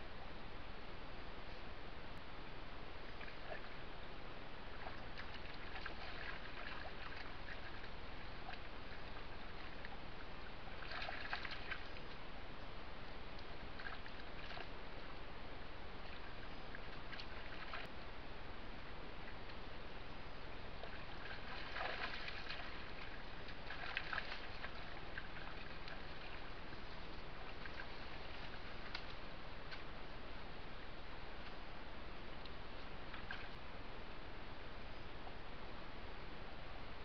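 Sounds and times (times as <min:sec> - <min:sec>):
shallow creek running: 0:01.6 - 0:37.0
deer splashing through water: 0:04.8 - 0:10.0, 0:10.7 - 0:12.1, 0:20.8 - 0:29.3.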